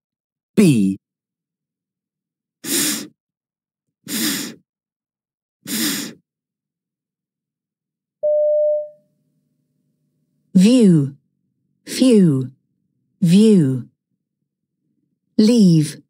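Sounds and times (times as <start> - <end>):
person voicing f hiss: 4.1 - 4.6, 10.6 - 11.2, 11.9 - 12.5
short steady beep: 8.2 - 9.0.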